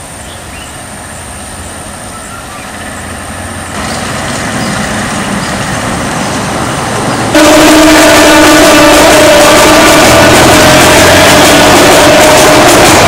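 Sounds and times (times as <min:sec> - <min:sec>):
passenger train passing: 0:00.0 - 0:13.0
vehicle road noise: 0:00.0 - 0:13.0
train horn blast: 0:07.3 - 0:13.0.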